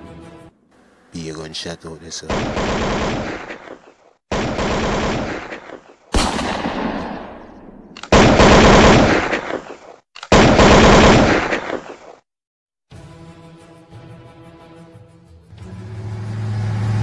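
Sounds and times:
automatic gunfire: 2.3 - 12.1.

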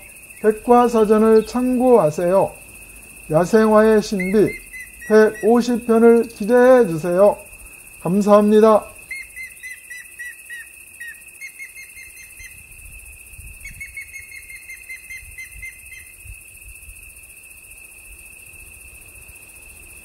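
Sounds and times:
quick repeated chirps: 0.0 - 12.6
high-pitched insect drone: 0.0 - 20.0.

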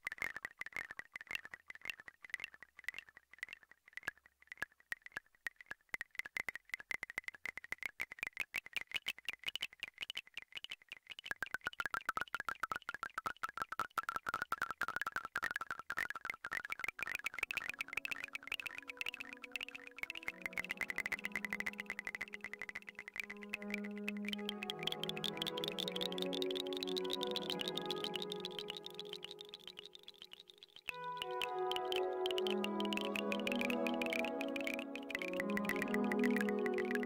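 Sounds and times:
synthesizer clicky high pings: 17.7 - 37.0.

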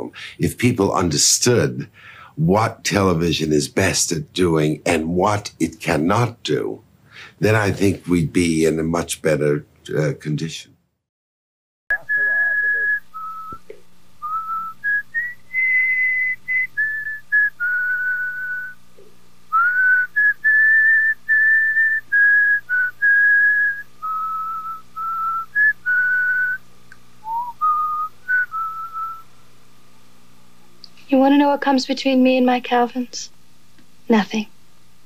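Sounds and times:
faint low hum: 0.0 - 10.8, 11.9 - 35.0
woman whistling a tune: 27.2 - 29.2.

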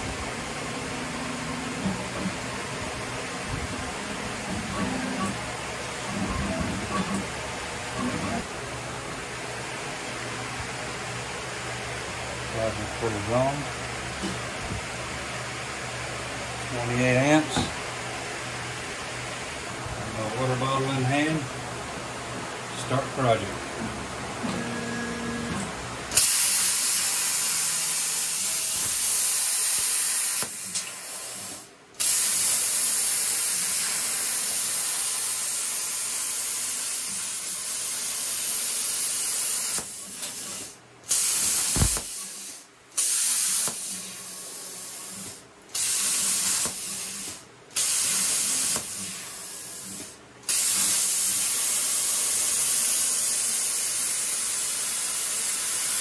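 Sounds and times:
plasma cutter hissing: 26.1 - 56.0.

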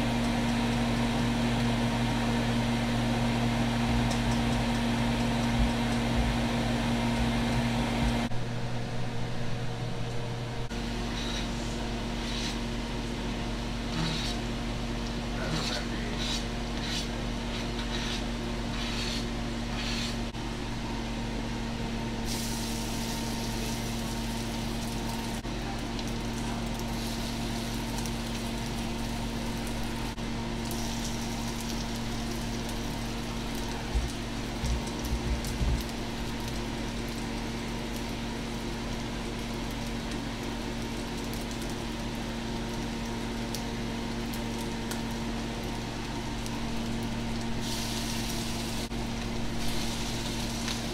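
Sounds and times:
low electrical hum: 0.0 - 50.9.

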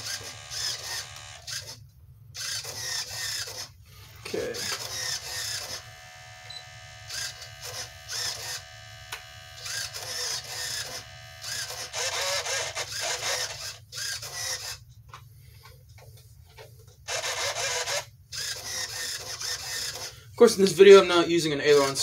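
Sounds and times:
servos whirring: 0.0 - 1.8, 2.4 - 14.9, 17.1 - 20.2.

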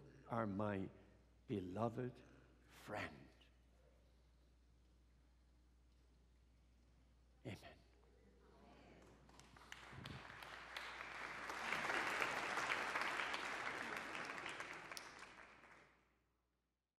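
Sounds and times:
crowd applauding: 9.0 - 15.9.

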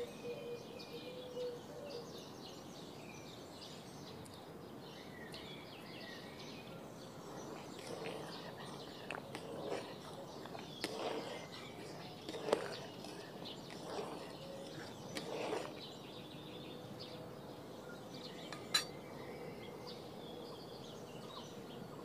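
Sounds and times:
spatula stirring syrup: 7.2 - 16.2, 18.4 - 18.9
spatula clinking on wok: 18.5 - 18.9.

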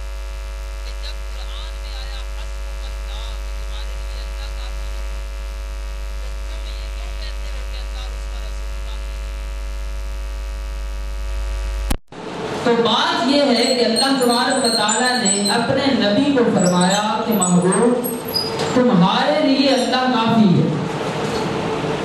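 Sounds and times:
electrical mains hum and buzz: 0.0 - 22.0
faint high chirps: 13.6 - 15.7.

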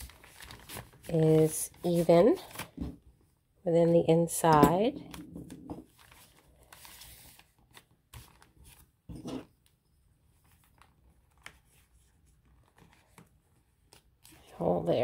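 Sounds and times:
paper pages rustling: 0.0 - 2.9, 5.8 - 14.5.

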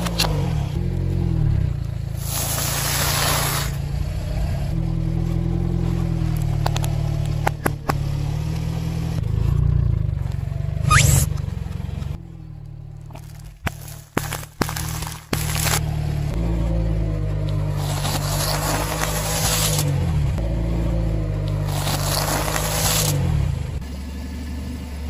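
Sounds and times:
car engine running: 0.0 - 25.0
rising squeal with loud burst: 10.8 - 11.3
tyre crunching snacks: 13.0 - 15.9, 17.6 - 20.0, 21.5 - 23.2.

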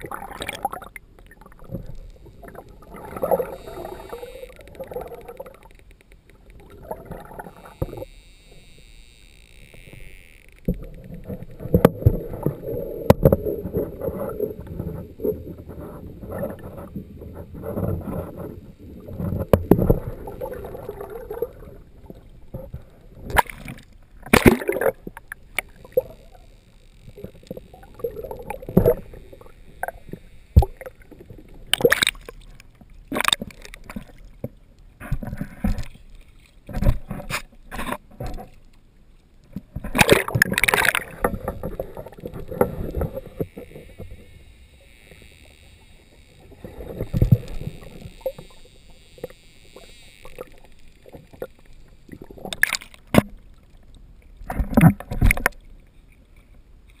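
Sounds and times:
water sloshing and gurgling: 0.0 - 57.0
sharp splashes and knocks: 23.3 - 26.1, 31.7 - 32.5, 39.6 - 43.6, 52.2 - 53.4, 54.4 - 55.6.

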